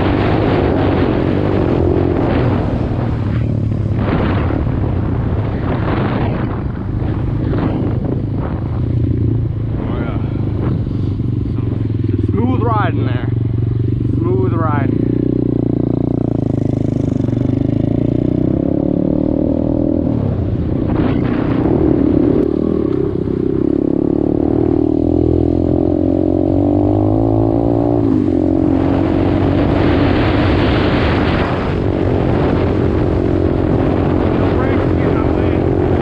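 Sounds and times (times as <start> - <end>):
dirt bike engine revving: 7.4 - 36.0.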